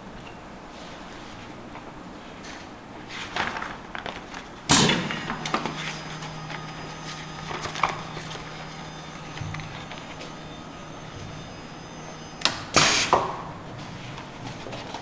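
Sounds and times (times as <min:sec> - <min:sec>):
steady low hum: 0:04.6 - 0:15.0.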